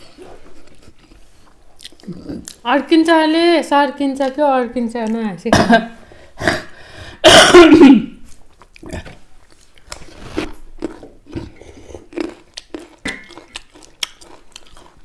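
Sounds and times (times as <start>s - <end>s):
chewing and lip-smacking: 0.5s - 2.7s, 8.3s - 15.0s
man coughing: 5.5s - 5.8s, 6.4s - 8.2s.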